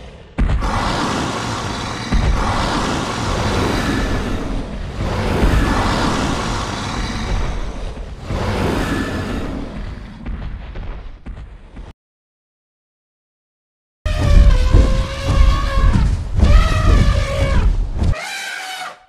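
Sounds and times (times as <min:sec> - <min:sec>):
deep rumbling dinosaur roar: 0:00.6 - 0:10.2
heavy stomping thuds: 0:14.1 - 0:18.2.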